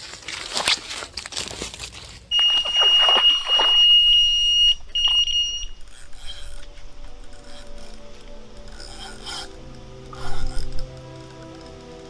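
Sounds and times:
rustling: 0.0 - 12.0
bite alarm high tone: 2.3 - 6.5.

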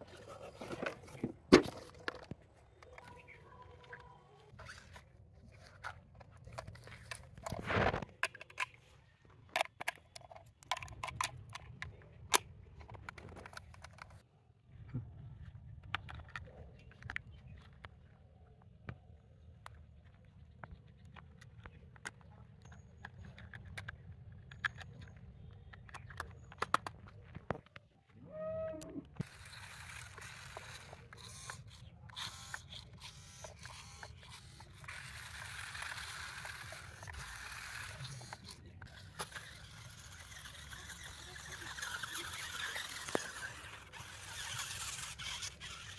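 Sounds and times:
toy motors and gears whirring: 0.0 - 14.2, 19.9 - 27.7, 28.7 - 45.9
plastic clicks and ticking: 19.6 - 27.8.

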